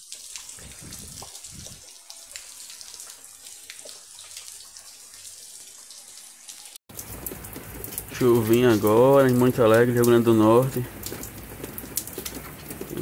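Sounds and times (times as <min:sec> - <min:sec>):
rain falling steadily: 0:00.0 - 0:13.0.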